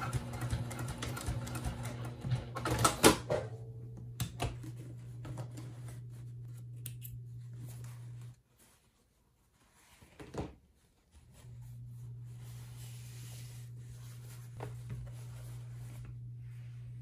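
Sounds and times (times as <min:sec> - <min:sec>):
fabric rustle: 0:07.4 - 0:17.0.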